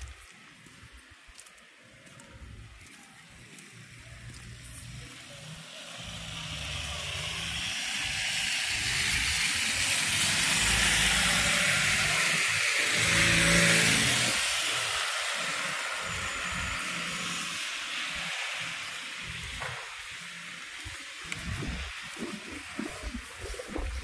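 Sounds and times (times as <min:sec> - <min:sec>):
tyres hissing in snow: 0:01.9 - 0:24.0
car engine hum: 0:02.3 - 0:24.0.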